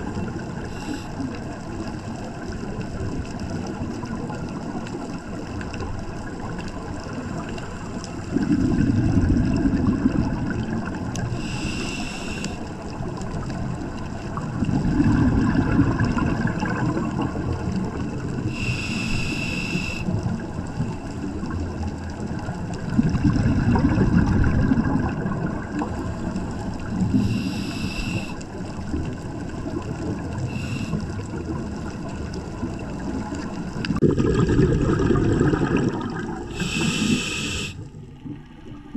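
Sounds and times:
hissing regulator inhalations: 0.6s - 1.3s, 11.3s - 12.8s, 18.5s - 20.1s, 27.1s - 28.5s, 30.5s - 31.2s, 36.4s - 38.0s
bubbling regulator exhalations: 8.2s - 12.6s, 14.4s - 20.4s, 22.8s - 28.4s, 32.7s - 38.9s.

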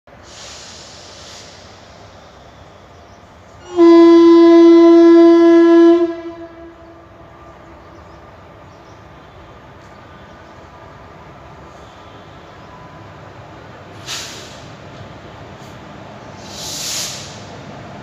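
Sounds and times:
electric locomotive horn blast: 3.6s - 7.1s.

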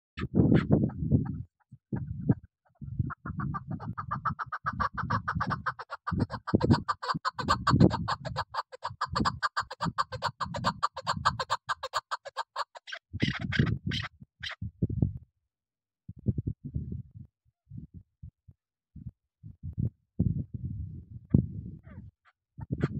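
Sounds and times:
partridge clucking calls: 0.6s - 14.6s.

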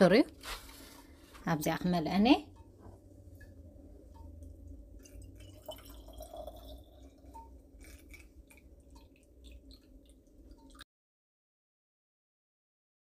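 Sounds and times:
liquid trickling and splashing: 3.3s - 10.8s.

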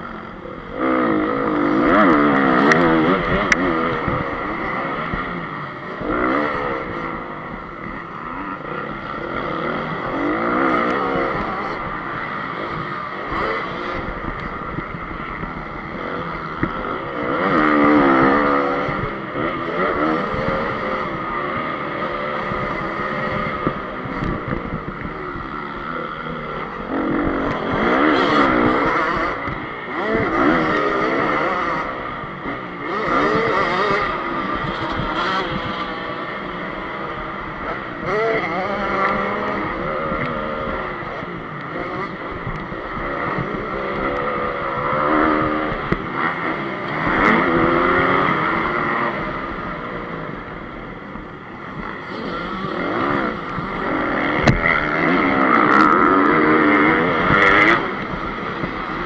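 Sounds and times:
motorcycle engine revving hard: 0.0s - 59.0s.

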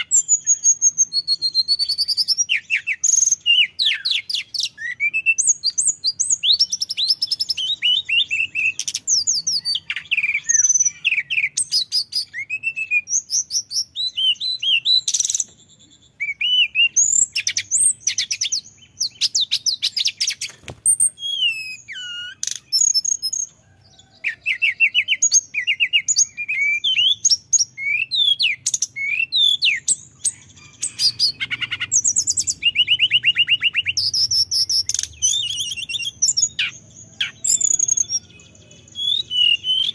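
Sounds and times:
bird singing whistled trills: 0.0s - 39.9s.

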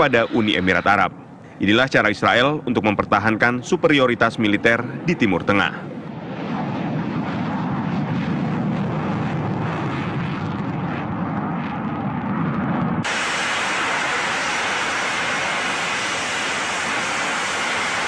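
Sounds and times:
hissing jet noise hovering: 0.0s - 6.2s, 13.0s - 18.0s
jet engine deep rumble: 0.0s - 18.0s.

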